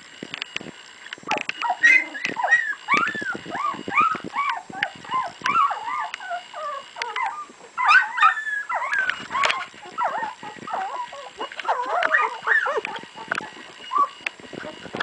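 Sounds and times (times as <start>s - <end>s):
puppies whimpering and squealing: 1.3s - 15.0s.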